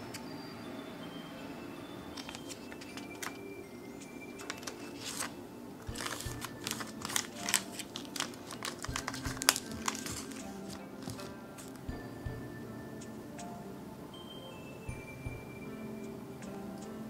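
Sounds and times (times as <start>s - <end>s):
soft background music: 0.0s - 17.0s
plastic film crinkling: 2.2s - 3.5s, 4.4s - 11.8s.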